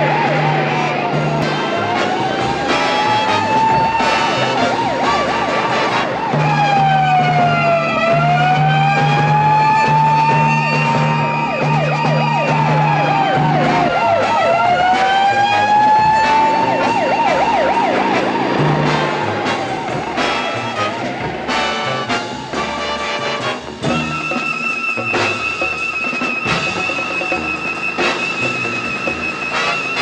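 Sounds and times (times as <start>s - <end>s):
ambulance siren wailing and yelping: 0.0s - 30.0s.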